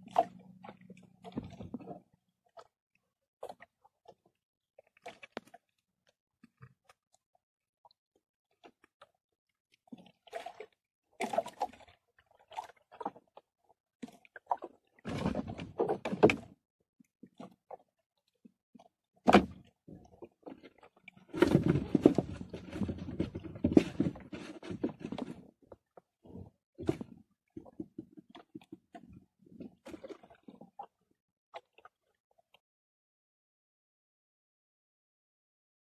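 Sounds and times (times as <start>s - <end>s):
knocks and clatters in boat: 0.0s - 2.8s, 8.5s - 16.6s, 17.2s - 32.6s
scraping and rustling: 21.3s - 25.5s.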